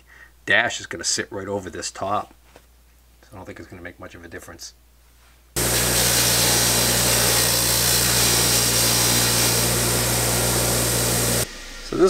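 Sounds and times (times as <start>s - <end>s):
bench grinder wire wheel running: 5.6s - 11.5s.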